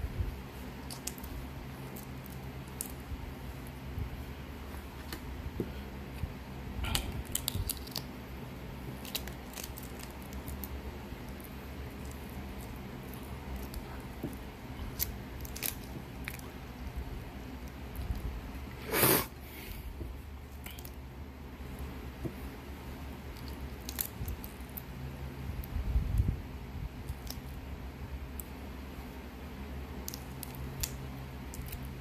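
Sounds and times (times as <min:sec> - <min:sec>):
eggshell cracking: 0:29.9 - 0:31.9.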